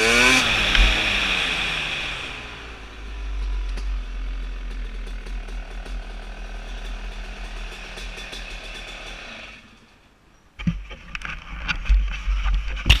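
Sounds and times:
dirt bike engine crackling: 0.0 - 10.0
sharp clicks and knocks: 10.6 - 13.0.

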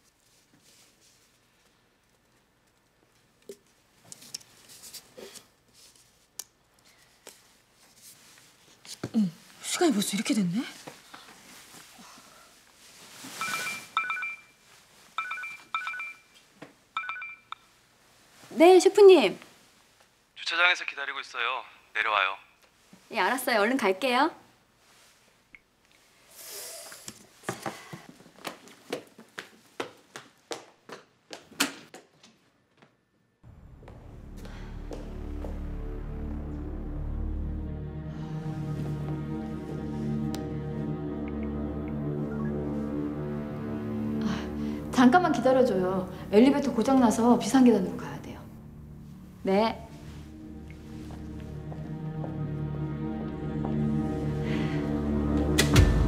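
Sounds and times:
footsteps on hard floor: 33.8 - 35.8, 50.1 - 54.1.

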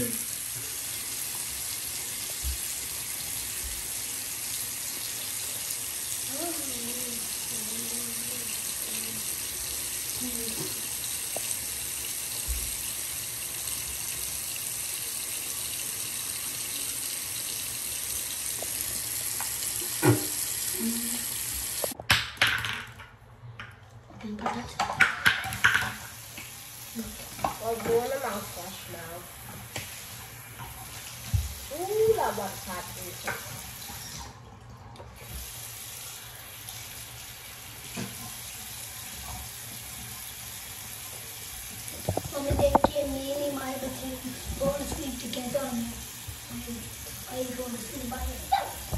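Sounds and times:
faucet running into a sink: 0.0 - 22.0, 24.5 - 48.9.

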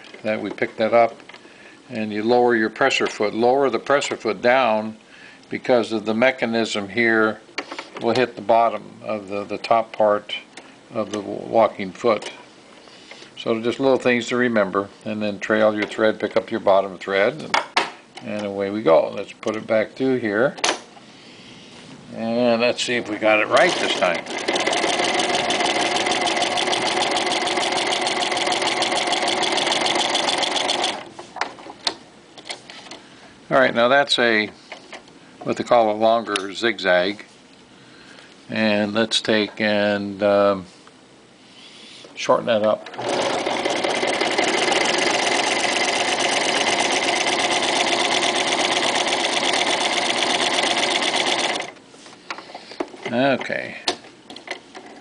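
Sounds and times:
sewing machine stitching: 23.5 - 31.1, 42.9 - 51.8.

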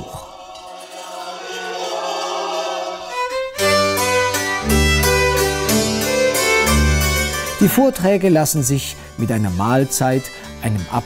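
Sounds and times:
violin: 1.4 - 11.0
double bass: 3.6 - 7.9
hammered dulcimer: 3.6 - 11.0.

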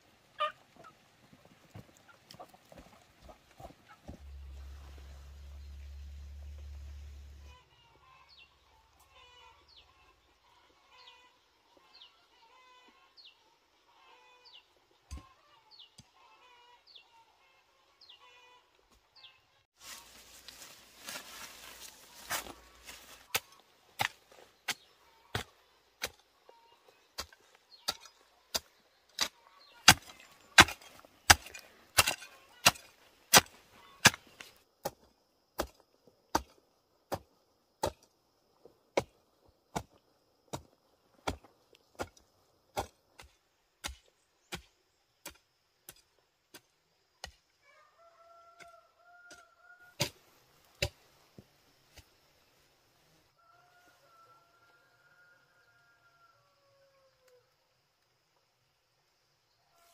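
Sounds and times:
rustle of leafy plants: 19.8 - 25.3
hoe chopping into dry soil: 22.3 - 26.2, 27.2 - 38.1, 38.9 - 47.4.

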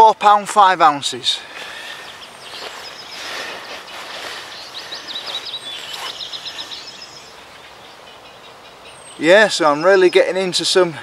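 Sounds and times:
songbird chirping: 0.0 - 11.0
steady background hiss: 0.0 - 11.0
faint rustling: 1.4 - 6.7.

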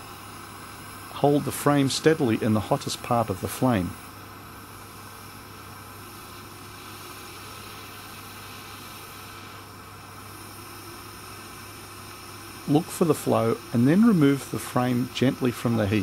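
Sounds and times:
gas torch hissing: 0.0 - 16.0.

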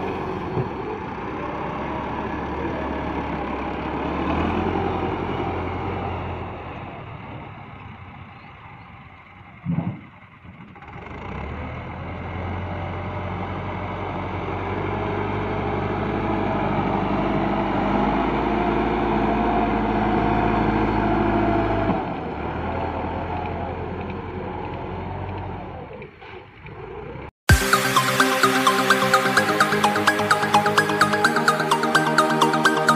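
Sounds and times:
tractor diesel engine under load: 0.0 - 26.2.

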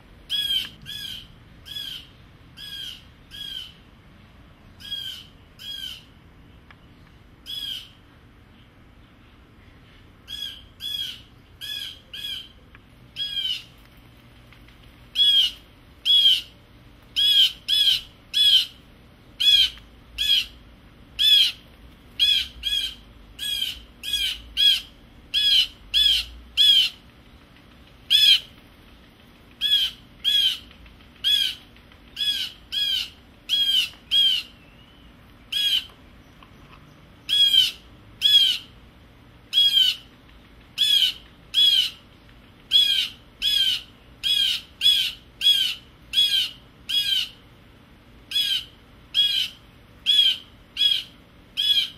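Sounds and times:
blue jay harsh calls: 0.3 - 3.9, 4.8 - 6.2, 7.4 - 8.0, 10.2 - 13.8, 15.1 - 20.6, 21.2 - 27.1, 28.0 - 28.6, 29.6 - 36.0, 37.2 - 38.8, 39.5 - 47.5, 48.3 - 51.9.

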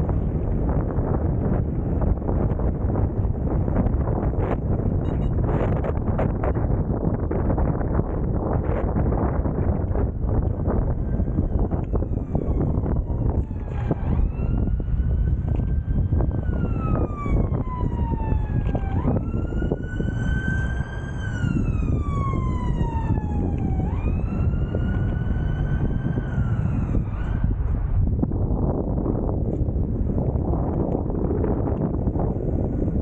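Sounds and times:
wind rumble on microphone: 0.0 - 33.0
emergency siren wailing: 7.6 - 28.0.

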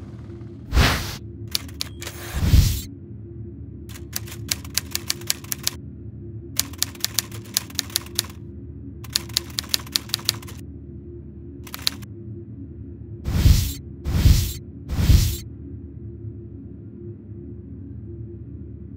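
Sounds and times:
steady low hum: 0.0 - 18.9
typewriter key clicks: 1.5 - 2.2, 3.9 - 5.8, 6.6 - 8.4, 9.1 - 10.6, 11.7 - 12.0.

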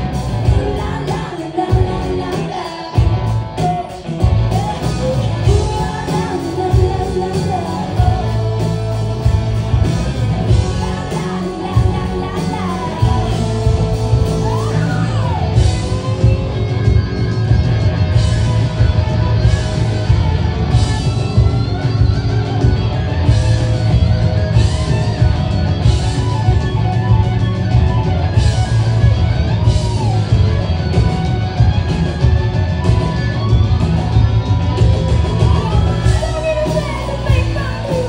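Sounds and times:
person singing: 0.0 - 16.6, 35.0 - 38.0
live rock band playing: 0.0 - 38.0.

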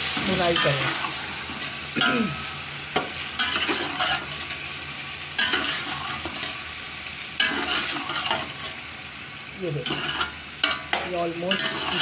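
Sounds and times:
meat sizzling in oil: 0.0 - 12.0
spatula scraping pot: 5.4 - 6.5, 7.4 - 8.8, 9.8 - 12.0.

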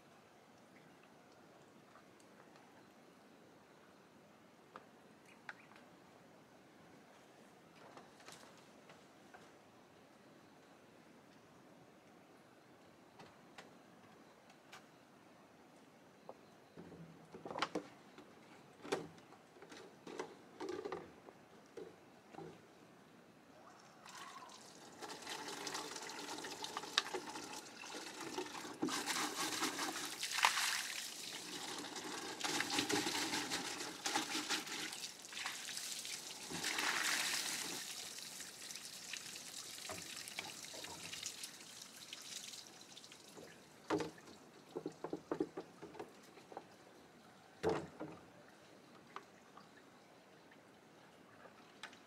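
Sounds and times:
water pouring and trickling: 24.1 - 46.8.

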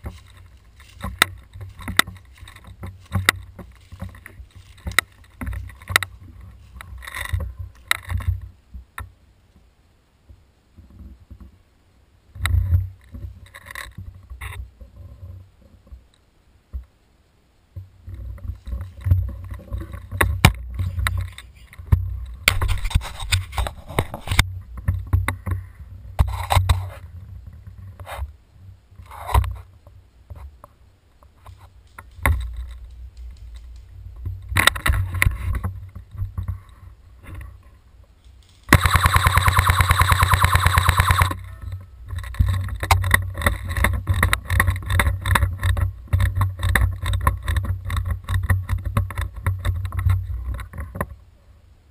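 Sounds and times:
footsteps on dry leaf litter: 0.0 - 5.4
airsoft rifle full-auto burst: 38.7 - 41.4.

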